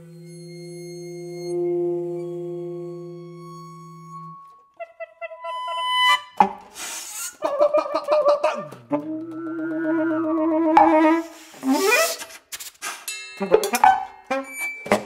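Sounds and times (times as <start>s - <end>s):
tenor saxophone: 0.0s - 6.4s
percussion: 11.9s - 15.0s.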